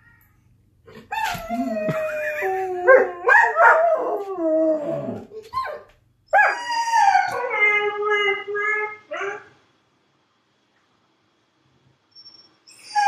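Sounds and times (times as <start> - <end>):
dog howling: 1.4 - 5.3.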